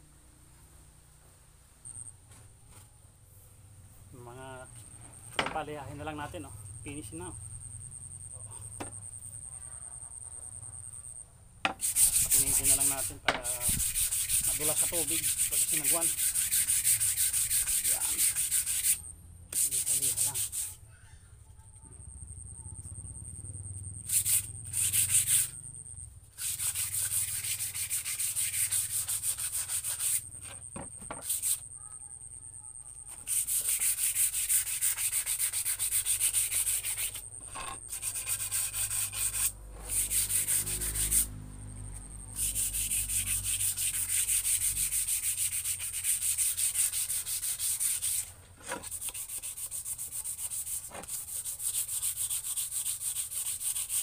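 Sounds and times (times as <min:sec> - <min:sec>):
sandpaper scratching on wood: 0:11.7 - 0:20.8, 0:24.0 - 0:25.6, 0:26.3 - 0:30.6, 0:31.2 - 0:31.7, 0:33.1 - 0:41.3, 0:42.4 - 0:54.0.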